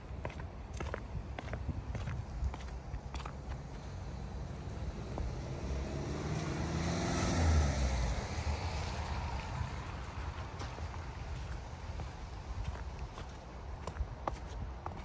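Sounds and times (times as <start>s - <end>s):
car driving past: 3.8s - 11.2s.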